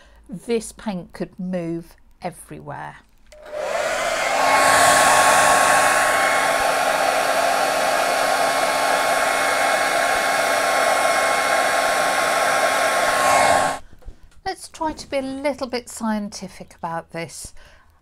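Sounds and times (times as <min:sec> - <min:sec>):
hair dryer running: 0:03.4 - 0:13.8.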